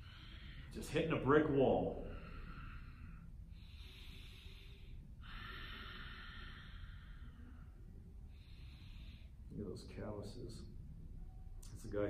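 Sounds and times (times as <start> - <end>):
man breathing deeply: 0.0 - 9.5.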